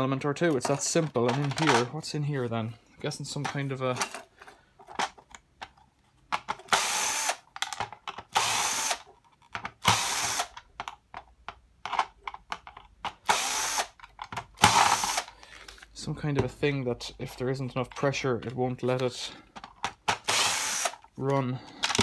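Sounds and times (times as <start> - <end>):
cordless drill running: 6.7 - 7.4, 8.3 - 9.0, 9.8 - 10.5, 13.2 - 14.0, 14.6 - 15.4, 20.2 - 21.0
small clicks and knocks: 10.6 - 13.2.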